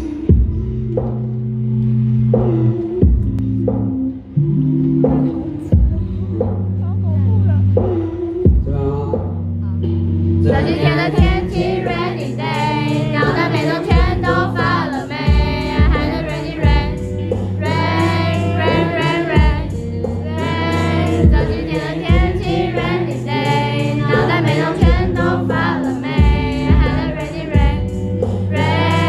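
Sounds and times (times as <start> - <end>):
man singing with vibrato: 10.4 - 27.8.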